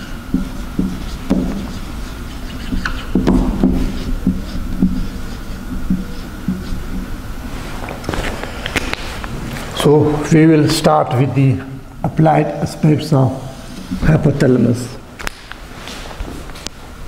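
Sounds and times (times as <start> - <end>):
marker pen writing on whiteboard: 0.0 - 9.3
faint high hum: 0.0 - 17.0.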